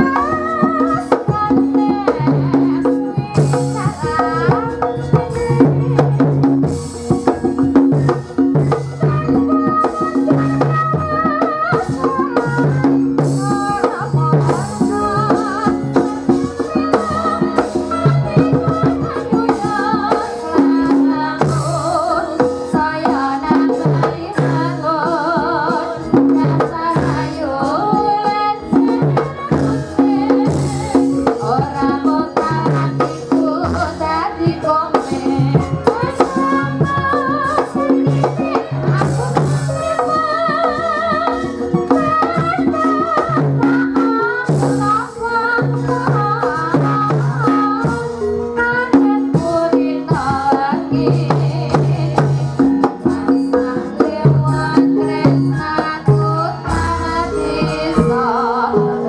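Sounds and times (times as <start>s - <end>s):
rattling percussion: 0.0s - 48.8s, 49.4s - 59.0s
hand-drum strokes: 0.0s - 59.0s
person singing wavering melody: 53.5s - 59.0s
metallophone and gong notes: 54.3s - 59.0s.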